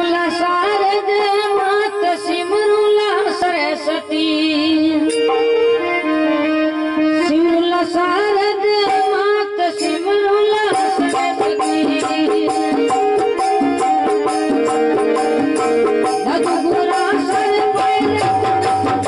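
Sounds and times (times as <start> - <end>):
harmonium: 0.0 - 19.0
electronic keyboard: 10.7 - 19.0.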